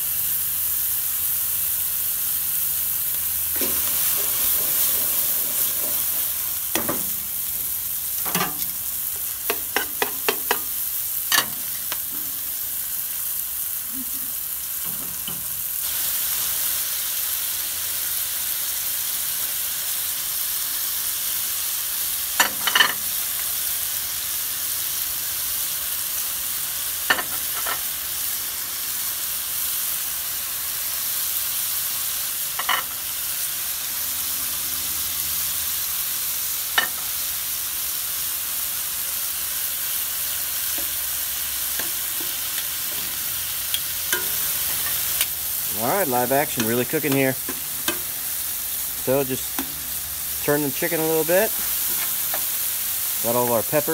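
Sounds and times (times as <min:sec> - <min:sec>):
chicken and peppers sizzling in pan: 0:00.0 - 0:53.9
metal tongs clicking on pan: 0:08.2 - 0:12.4, 0:41.7 - 0:45.4, 0:46.5 - 0:48.1.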